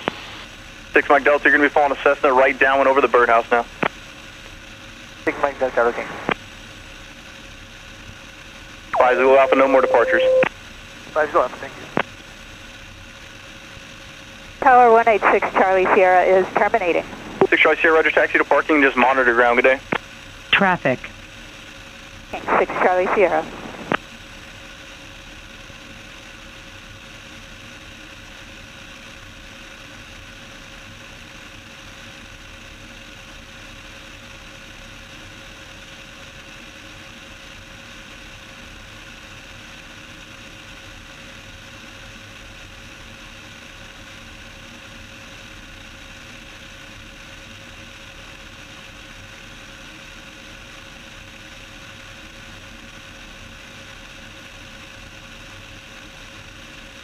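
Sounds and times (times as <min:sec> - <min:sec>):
aircraft engine drone: 0:00.0 - 0:03.8, 0:05.0 - 0:06.4, 0:08.9 - 0:25.1
faint steady tone: 0:09.0 - 0:10.5.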